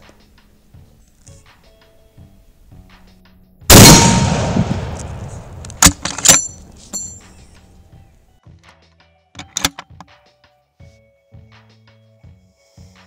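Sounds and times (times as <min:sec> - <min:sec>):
rifle shot with echo: 0:03.7 - 0:06.6
rifle bolt metallic clacks: 0:04.9 - 0:07.3, 0:09.4 - 0:10.1.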